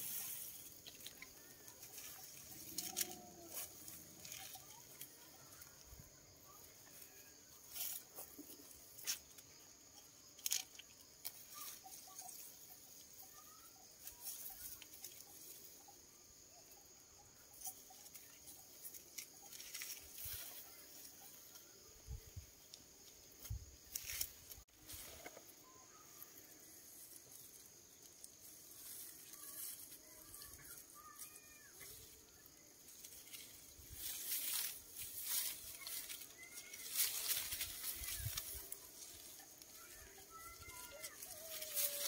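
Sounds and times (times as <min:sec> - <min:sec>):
thin high hiss: 0:00.0 - 0:03.9
dry rice stalks rustling: 0:00.0 - 0:15.9, 0:17.4 - 0:42.0.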